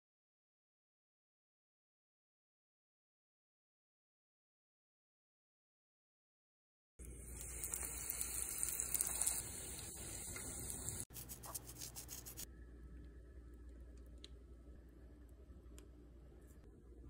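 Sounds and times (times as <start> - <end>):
food sizzling in deep fryer oil: 7.1 - 11.1.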